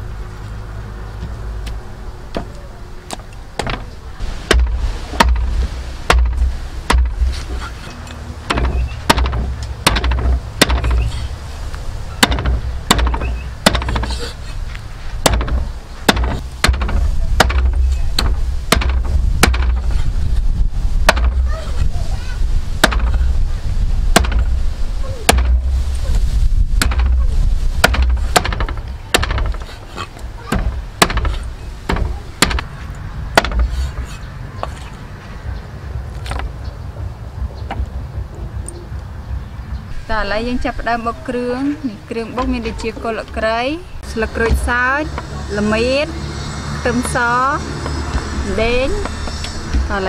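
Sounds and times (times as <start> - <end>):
cleaver chopping on wooden block: 4.5 - 5.5, 6.1 - 7.4, 8.5 - 11.1, 12.2 - 14.3, 15.2 - 19.9, 21.1 - 21.4, 22.8 - 23.2, 24.2 - 24.5, 25.3 - 25.6, 26.8 - 27.2, 27.8 - 29.8, 30.5 - 32.7, 33.4 - 34.2.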